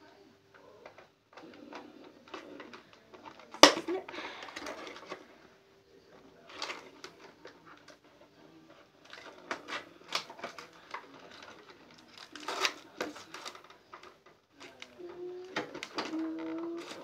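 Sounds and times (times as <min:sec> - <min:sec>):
packaging rustling: 0:08.8 - 0:17.0.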